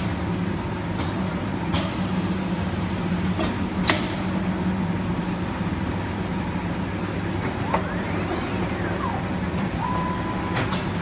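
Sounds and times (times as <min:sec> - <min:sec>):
packing machine humming: 0:07.2 - 0:11.0.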